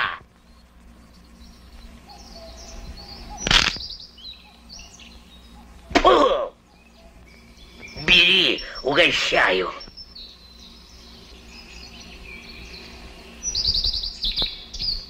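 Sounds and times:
person exclaiming: 0.0s - 0.2s, 6.0s - 6.6s
small birds chirping: 0.0s - 15.0s.

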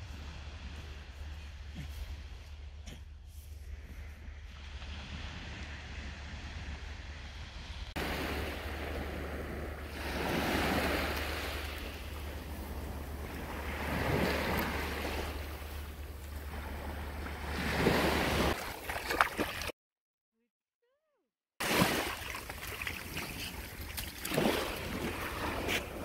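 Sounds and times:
wind rumble on microphone: 0.0s - 18.6s
small sea waves breaking on shore: 3.7s - 19.7s, 21.6s - 26.0s.

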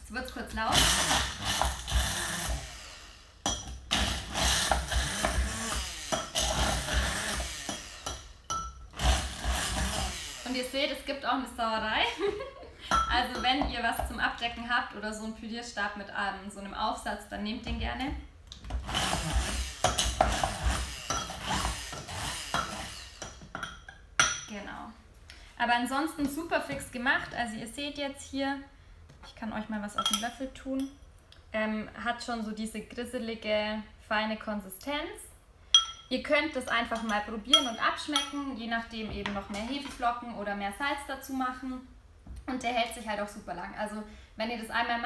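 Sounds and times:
stick blender grinding nuts: 0.7s - 3.0s, 3.9s - 8.2s, 8.9s - 10.5s, 18.6s - 23.2s.

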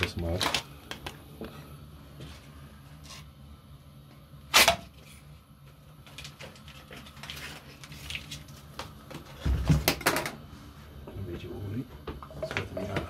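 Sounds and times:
foil wrapper crinkling: 6.0s - 8.9s.

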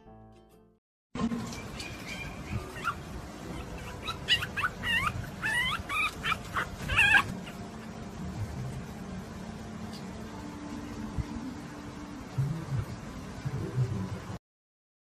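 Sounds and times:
dog whining and yipping: 1.5s - 7.7s.

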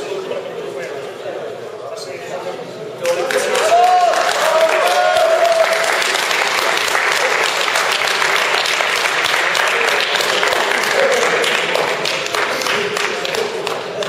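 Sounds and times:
crowd applauding: 3.0s - 14.0s.

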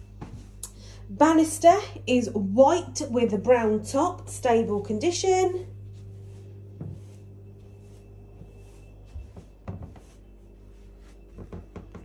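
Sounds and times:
low steady hum: 0.0s - 12.0s
soft knocks and bumps: 6.8s - 7.2s, 9.1s - 10.2s, 11.3s - 12.0s.

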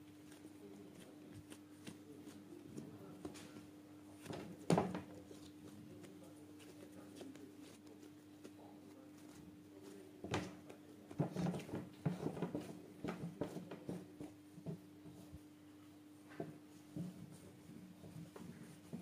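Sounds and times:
dough slapping on a mat: 0.0s - 15.5s, 16.2s - 19.0s.

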